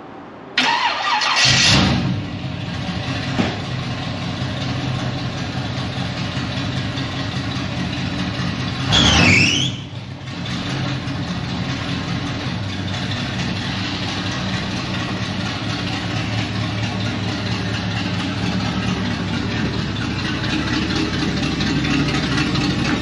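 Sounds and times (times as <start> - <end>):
car engine starting and idling: 0.6 - 23.0.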